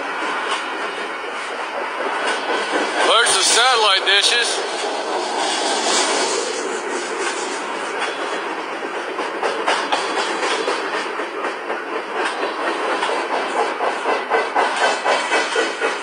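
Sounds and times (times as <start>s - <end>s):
train rushing rumble: 0.0s - 16.0s
wheels clacking over rail joints: 9.2s - 15.9s.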